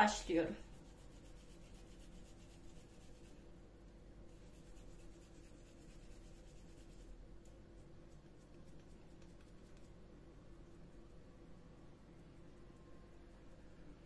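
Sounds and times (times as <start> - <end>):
low steady hum: 0.0 - 14.0
hands rubbing meat mixture: 0.7 - 3.4, 4.3 - 10.0.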